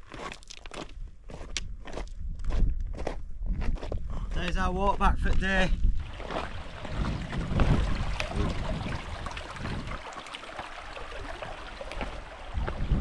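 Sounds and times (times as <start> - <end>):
boots stepping on wet rocks: 0.0 - 2.0, 6.0 - 8.3, 11.1 - 13.0
wind rumbling on microphone: 0.9 - 13.0
stream running over stones: 6.0 - 13.0.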